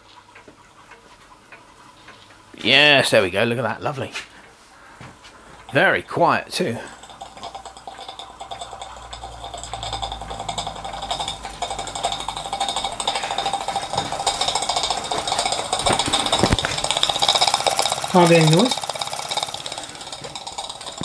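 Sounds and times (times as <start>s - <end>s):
model steam engine beating: 5.7s - 21.0s.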